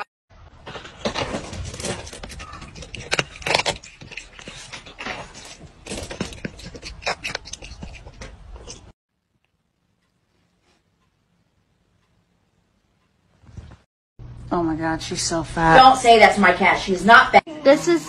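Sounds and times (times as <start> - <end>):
cat crunching dry kibble: 1.3 - 8.8.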